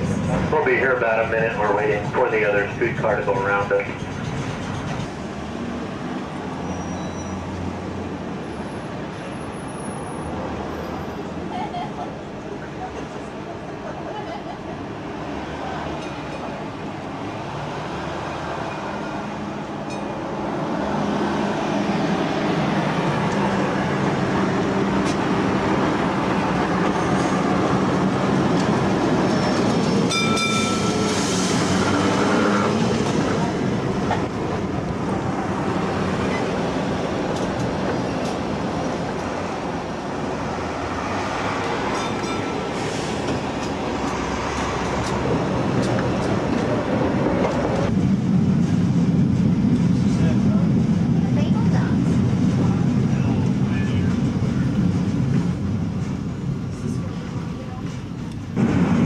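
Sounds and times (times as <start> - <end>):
tram rail rumble and clatter: 0.0 - 59.0
wheel squealing on rail: 6.4 - 7.8, 29.1 - 33.3.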